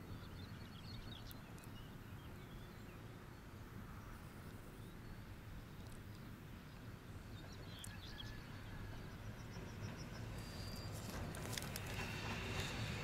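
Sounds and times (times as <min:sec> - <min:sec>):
train approaching with low rumble: 0:00.0 - 0:13.0.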